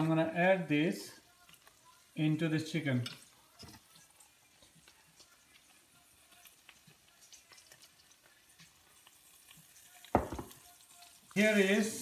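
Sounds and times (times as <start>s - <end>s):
faint clicks of spooning batter: 1.4s - 2.0s.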